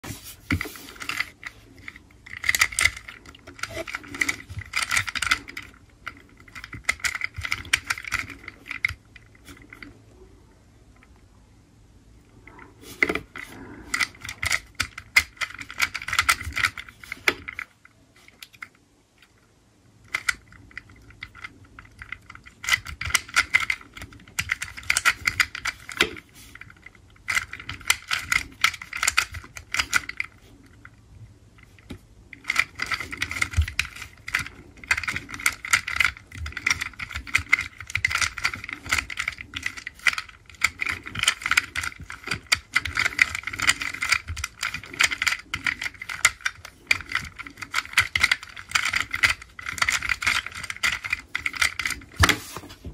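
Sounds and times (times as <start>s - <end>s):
puzzle cube layers clicking: 0.1s - 9.9s, 20.1s - 30.8s, 31.8s - 52.5s.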